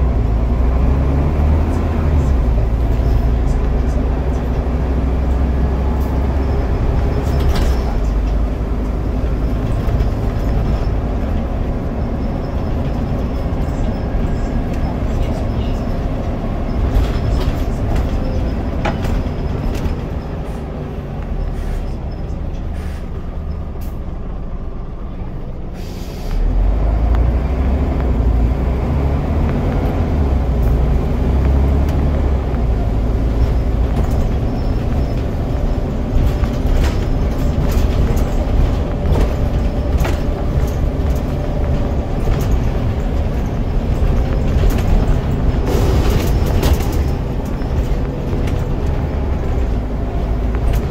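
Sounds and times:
bus body rattles: 0.0s - 25.8s, 26.4s - 50.9s
bus diesel engine: 0.0s - 50.9s
air brake hiss: 21.5s - 21.9s, 22.7s - 23.1s, 25.8s - 26.4s.

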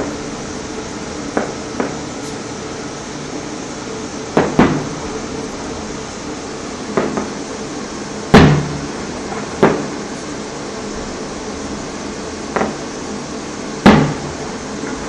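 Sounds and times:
fireworks popping: 1.3s - 2.4s, 4.4s - 5.0s, 7.0s - 7.4s, 8.3s - 10.3s.

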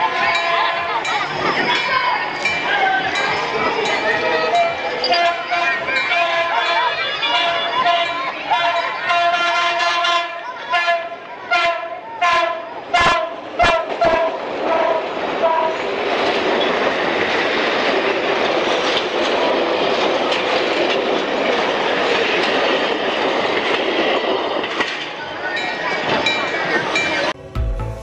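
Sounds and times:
train carriages rolling past: 0.0s - 28.0s
train horn blasts: 5.0s - 15.8s.

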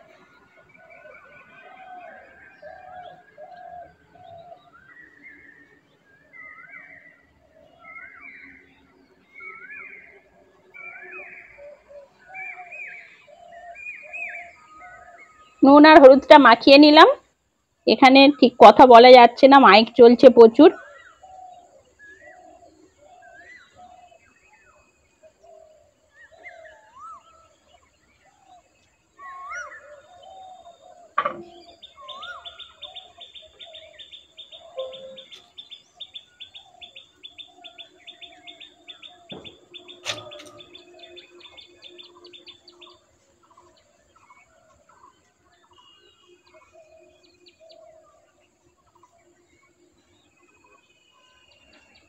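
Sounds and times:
birds chirping: 0.0s - 17.2s, 17.9s - 52.0s
sharp knocks: 31.2s - 31.7s
bird rising whistles: 34.6s - 35.5s.

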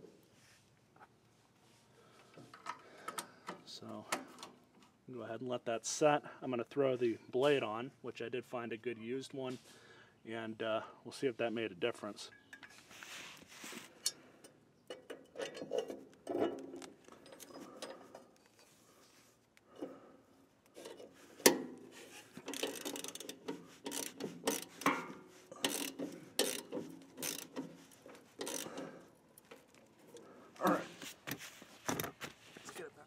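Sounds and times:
knocks of mower blade handled: 20.8s - 28.9s
ratchet wrench clicking: 22.4s - 27.8s, 28.4s - 28.9s.

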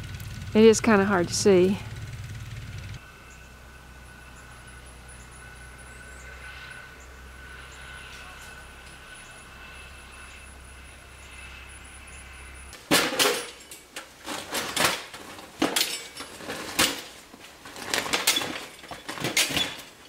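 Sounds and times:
steady low hum: 0.0s - 12.8s
clattering on metal cart: 12.8s - 20.0s.

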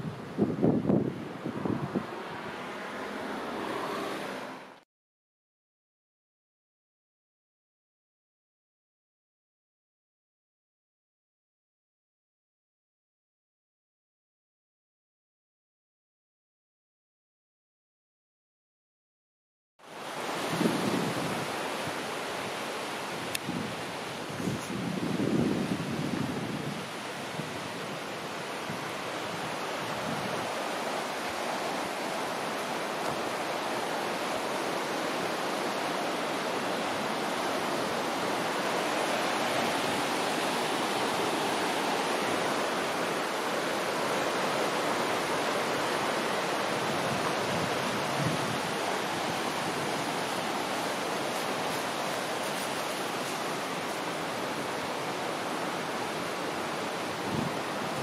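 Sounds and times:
stream and waterfall rushing: 0.0s - 4.8s, 19.8s - 58.0s.

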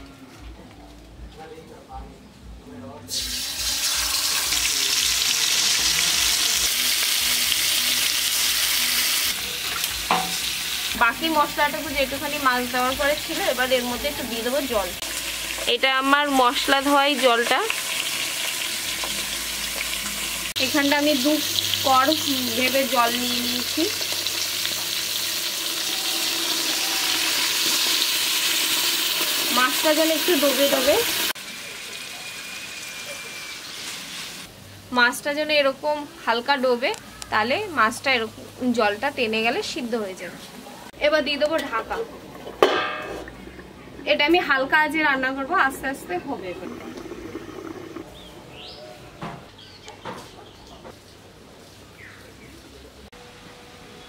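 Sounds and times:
fish frying in hot oil: 3.1s - 34.5s.

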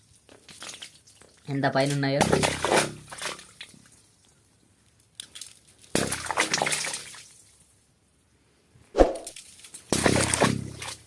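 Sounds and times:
stones splashing into well water: 0.2s - 3.9s, 5.2s - 7.4s, 9.2s - 11.0s.

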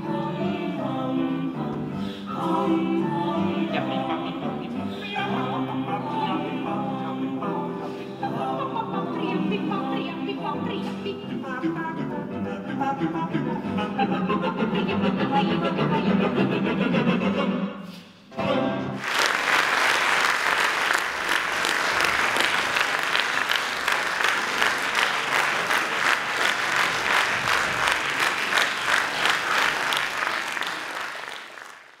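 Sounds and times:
audience applauding: 19.0s - 32.0s.

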